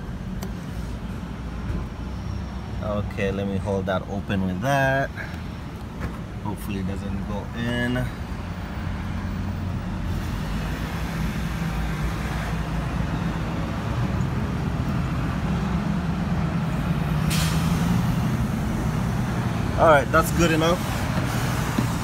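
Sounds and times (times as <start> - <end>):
brief sharp hiss: 17.2 - 17.8.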